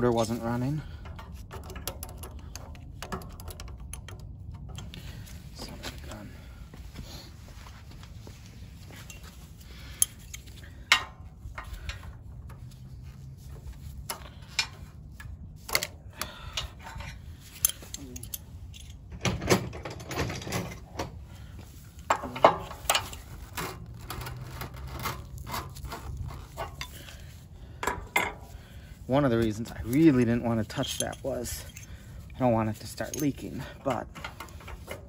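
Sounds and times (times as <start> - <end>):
wrenches clinking on metal: 0.0 - 5.3, 15.7 - 20.9, 22.1 - 28.5, 29.2 - 35.0.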